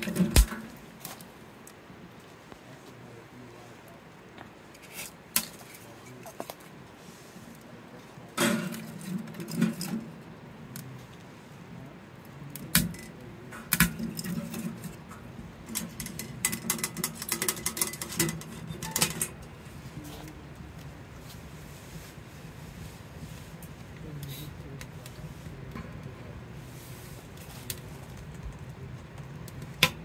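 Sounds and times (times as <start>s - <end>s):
firewood knocking against logs and metal: 0.0s - 1.8s, 8.3s - 10.2s, 12.5s - 19.5s, 27.7s - 30.0s.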